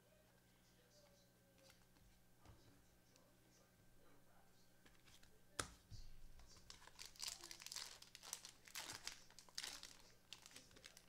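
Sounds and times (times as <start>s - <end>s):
foil wrapper crinkling and tearing: 6.5s - 11.0s.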